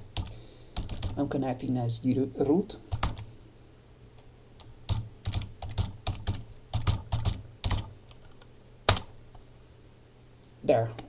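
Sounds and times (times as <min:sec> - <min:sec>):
keyboard typing: 0:00.0 - 0:01.2, 0:02.9 - 0:03.2, 0:04.6 - 0:09.1.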